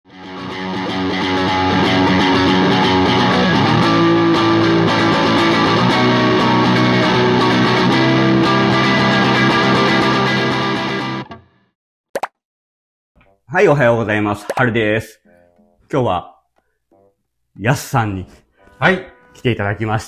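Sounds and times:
electric guitar picked notes and chords: 0.1s - 11.5s.

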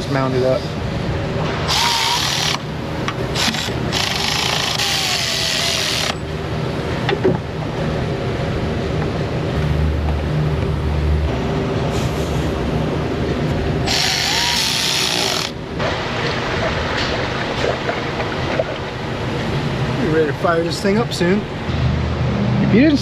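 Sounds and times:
low shop background hum: 0.0s - 23.0s
cordless drill driving screws: 1.7s - 2.6s, 3.4s - 6.2s, 13.9s - 15.6s.

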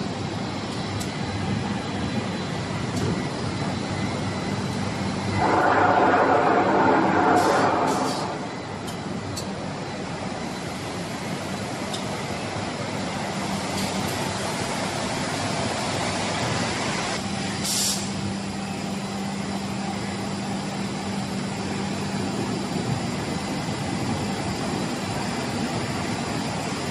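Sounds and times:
glass-processing machinery running: 3.4s - 10.6s
low hum: 5.2s - 8.9s
short air hiss: 17.6s - 18.1s.

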